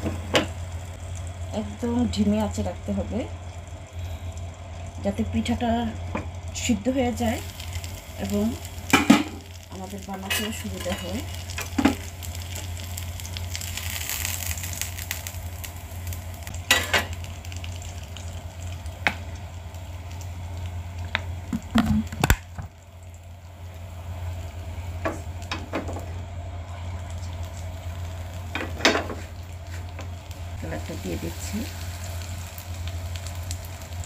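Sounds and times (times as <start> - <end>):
batter sizzling in frying pan: 0.0 - 34.0
low hum: 0.0 - 34.0.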